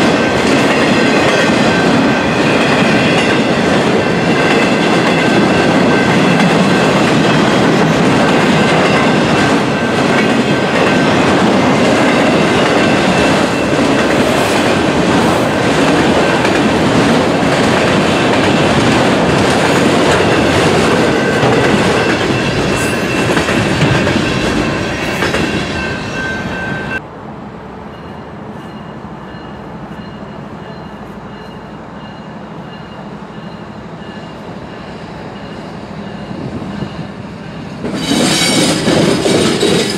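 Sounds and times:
train wheels clattering on rails: 0.0 - 27.0, 33.5 - 39.9
wheel squeal: 38.0 - 38.8.

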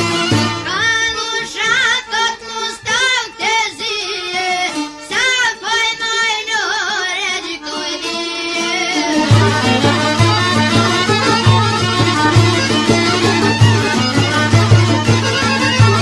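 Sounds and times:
folk song lead melody with vibrato: 0.0 - 16.0.

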